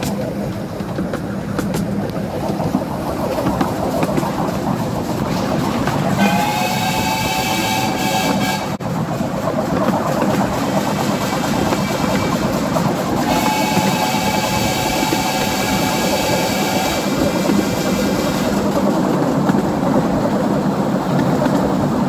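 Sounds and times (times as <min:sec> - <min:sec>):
train wheels rumbling on track: 0:00.0 - 0:22.0
steam locomotive whistle: 0:06.2 - 0:08.8, 0:13.2 - 0:17.2.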